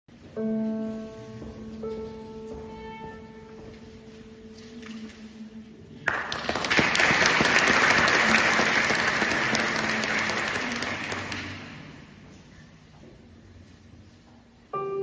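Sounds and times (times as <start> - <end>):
audience applauding: 6.0 - 11.9.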